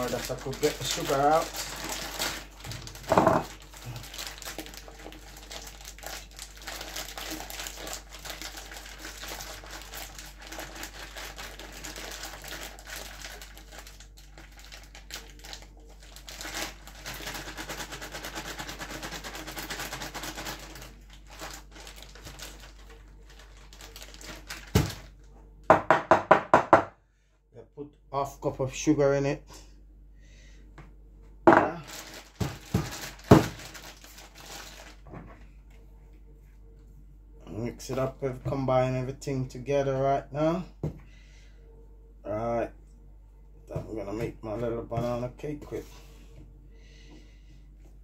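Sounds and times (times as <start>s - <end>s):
packaging crinkling: 0.0s - 25.3s, 31.8s - 35.1s.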